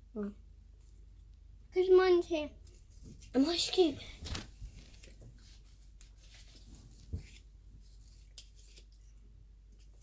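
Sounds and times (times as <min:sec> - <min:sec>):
plastic toy rustling: 0:02.7 - 0:08.9.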